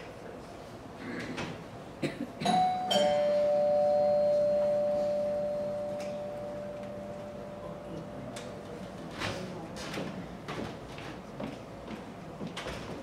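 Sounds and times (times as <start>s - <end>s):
two-note doorbell chime: 2.5s - 7.9s.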